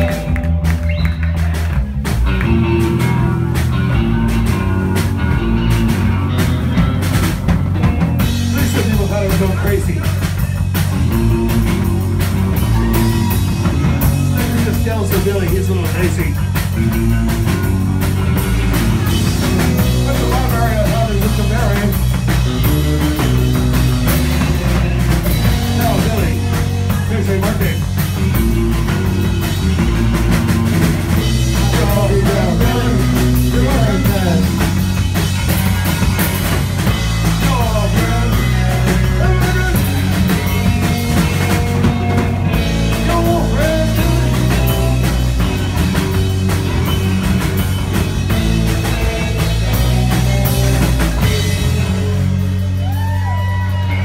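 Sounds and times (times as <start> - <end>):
distorted electric guitar: 0.0 - 54.0
drum kit: 0.0 - 54.0
electric bass: 0.0 - 54.0.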